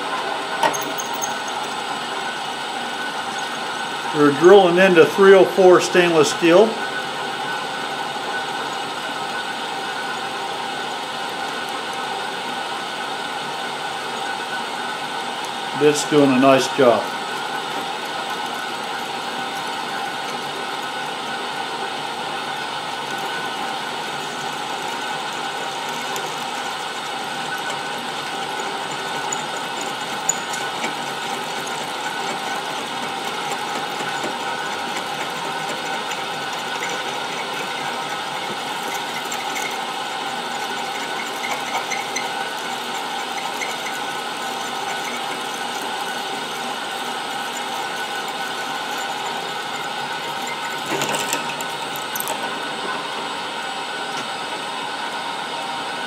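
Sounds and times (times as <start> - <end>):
drill press drilling into steel: 0.6 - 2.0, 22.6 - 53.0.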